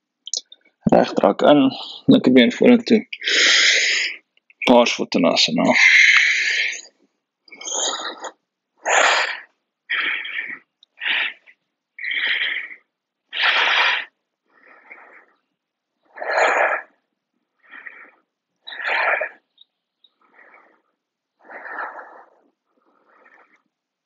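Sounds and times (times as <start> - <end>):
man breathing heavily: 3.2 - 4.3, 5.7 - 15.5, 16.1 - 19.5, 20.1 - 23.8.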